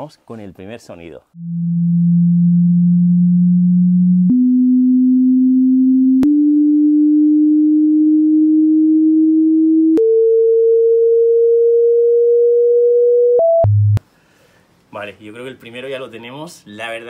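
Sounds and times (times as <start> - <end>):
electronic test tone: 1.4 - 14.0
low buzz: 1.4 - 14.0.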